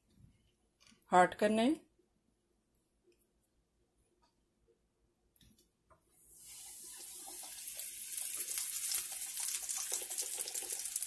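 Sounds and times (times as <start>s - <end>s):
oil sizzling and crackling: 6.2s - 11.0s
chicken frying in hot oil: 6.3s - 11.0s.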